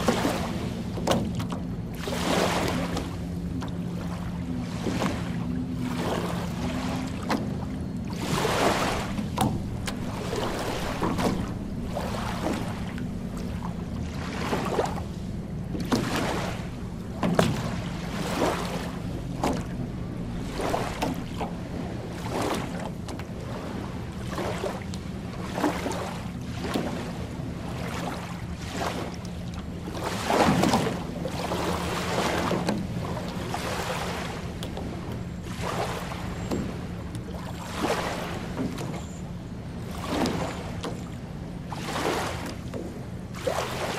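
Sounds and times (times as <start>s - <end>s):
small waves lapping on shore: 0.0s - 43.9s
steady low hum: 0.0s - 43.9s.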